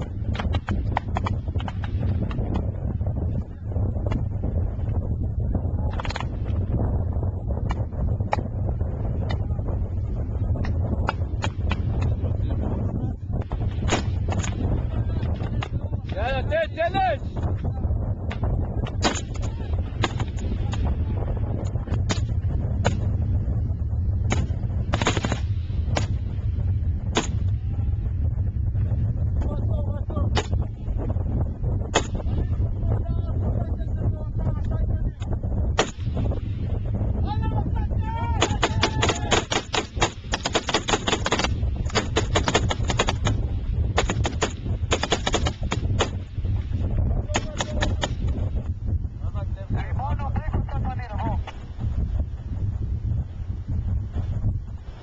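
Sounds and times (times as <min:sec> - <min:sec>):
steady low rumble: 0:00.0 - 0:55.0
rifle shots: 0:19.0 - 0:20.4, 0:24.3 - 0:26.1, 0:35.8 - 0:36.2, 0:38.4 - 0:46.2.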